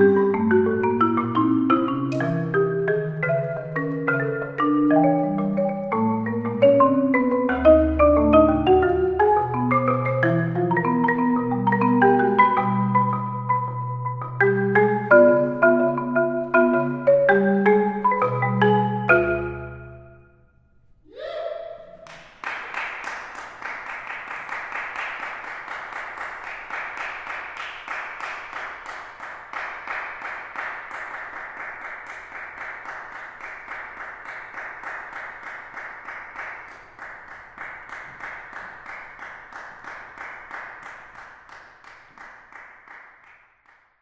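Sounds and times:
audience applauding: 22.0s - 43.8s.

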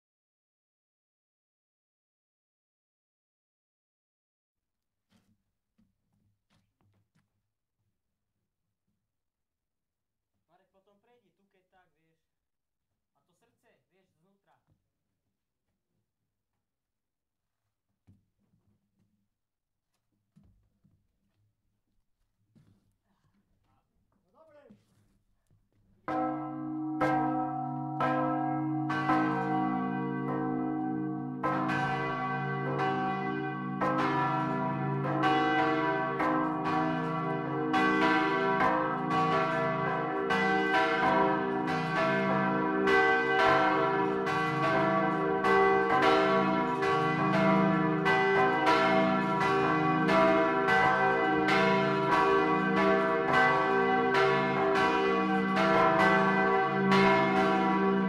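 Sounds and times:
church bells ringing: 26.1s - 58.0s.

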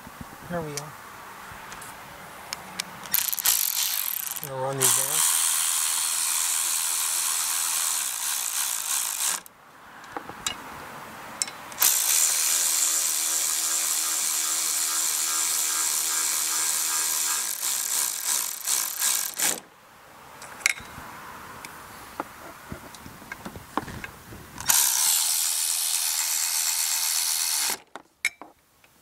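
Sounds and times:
electric ratchet whining: 3.0s - 9.5s, 11.8s - 19.6s, 24.6s - 27.8s.

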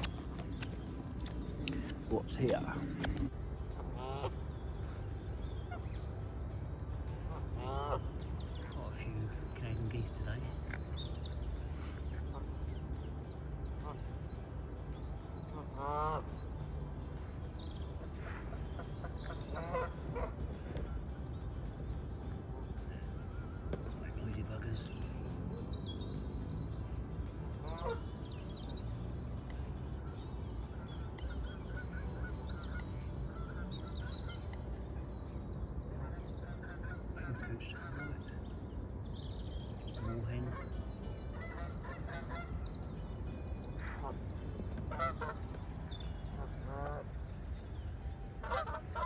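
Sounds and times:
songbirds trilling faintly: 0.0s - 49.0s
steady low rumble: 0.0s - 49.0s
geese honking: 3.8s - 6.0s, 7.2s - 8.8s, 15.5s - 16.5s, 18.1s - 20.8s, 27.4s - 28.4s, 30.8s - 34.6s, 36.0s - 38.4s, 40.0s - 42.9s, 43.8s - 47.5s, 48.3s - 49.0s.

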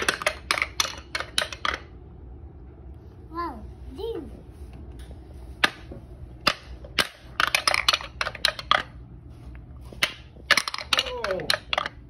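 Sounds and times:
ball clacking down wooden ramps: 0.0s - 2.0s, 5.6s - 9.1s, 9.8s - 12.0s.

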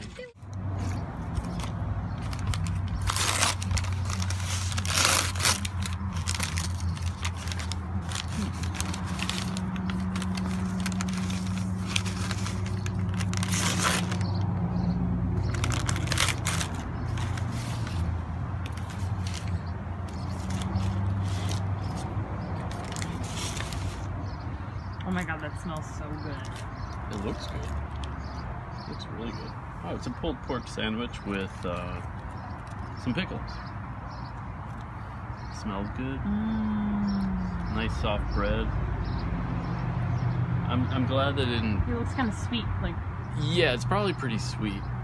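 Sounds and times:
paper crinkling and tearing: 1.3s - 14.4s, 15.4s - 24.1s.

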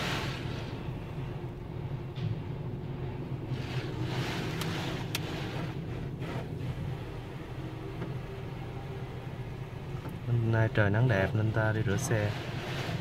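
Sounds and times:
water spray hitting car roof: 0.0s - 0.8s
steady low hum: 0.0s - 13.0s.

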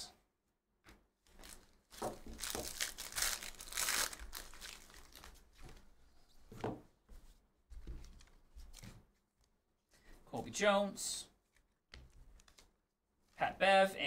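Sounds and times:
cards rustling: 1.3s - 5.8s, 11.5s - 12.8s
foil wrapper tearing and crinkling: 1.4s - 5.4s.

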